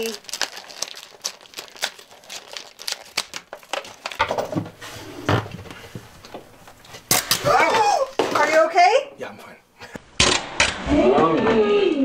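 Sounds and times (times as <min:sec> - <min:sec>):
plastic packaging crinkling: 0:00.0 - 0:04.7.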